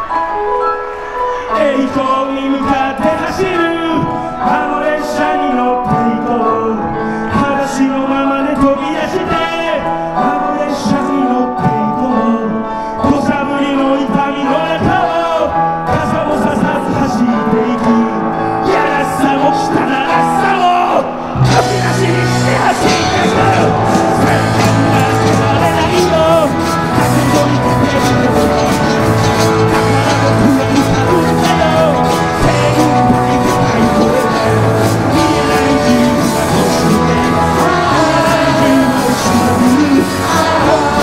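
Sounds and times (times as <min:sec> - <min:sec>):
man singing: 0:01.2 - 0:41.0
live rock band playing: 0:18.6 - 0:41.0.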